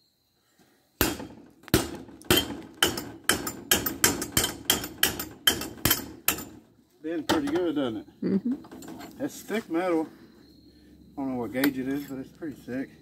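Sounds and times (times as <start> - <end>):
hammer striking metal: 1.0 - 6.6.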